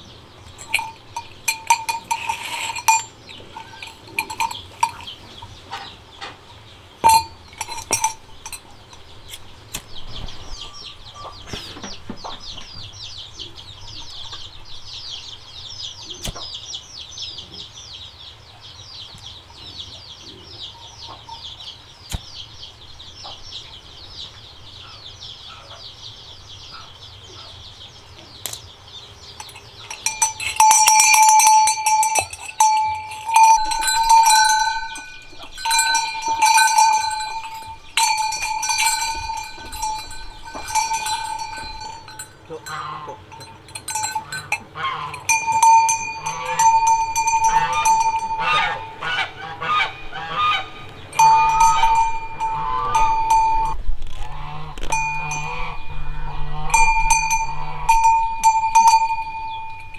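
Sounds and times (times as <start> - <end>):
tin-can bell clanking: 0.6 - 5.2, 7.0 - 8.6, 29.4 - 49.2, 51.2 - 53.8, 54.9 - 59.9.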